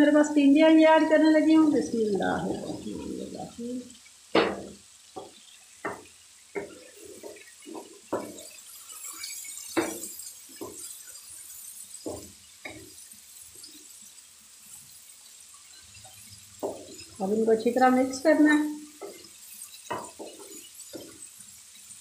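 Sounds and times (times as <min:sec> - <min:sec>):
spatula knocking and scraping in pan: 0:04.3 - 0:15.0, 0:15.6 - 0:22.0.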